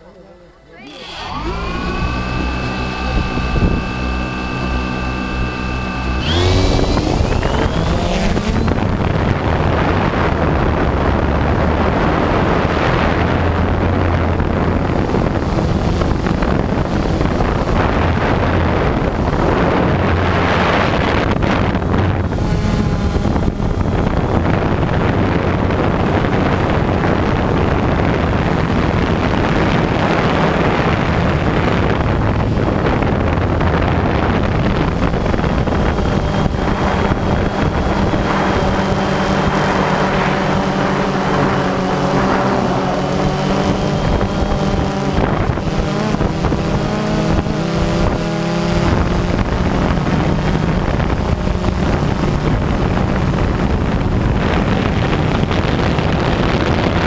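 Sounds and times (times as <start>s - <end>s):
drone motors whining: 0.0s - 57.0s
propeller wash and wind rushing: 0.9s - 57.0s.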